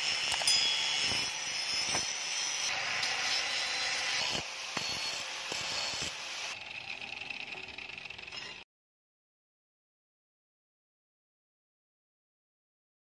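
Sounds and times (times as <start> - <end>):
angle grinder grinding steel: 0.0 - 8.6.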